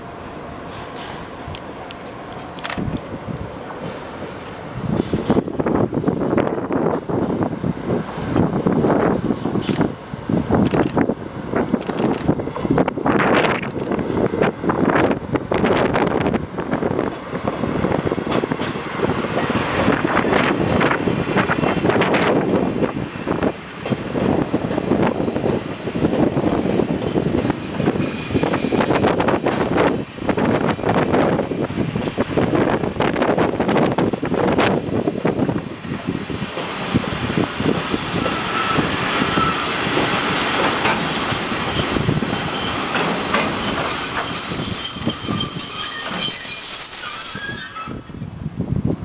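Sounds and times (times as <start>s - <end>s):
train wheels rumbling on rail: 0.0s - 49.0s
high-pitched brake squeal: 26.7s - 29.4s, 36.7s - 48.3s
wheels clacking over rail joints: 38.2s - 46.5s.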